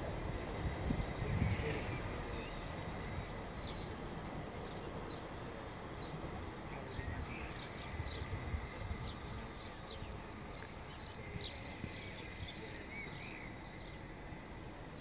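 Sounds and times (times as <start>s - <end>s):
outdoor rumble and hiss: 0.0s - 15.0s.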